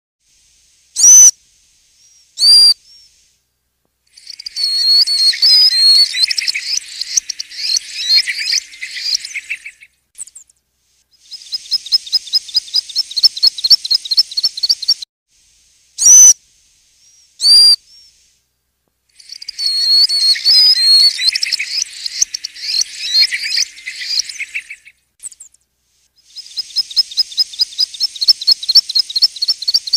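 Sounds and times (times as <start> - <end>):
stone-curlew calling: 4.2 - 9.9, 19.2 - 25.0.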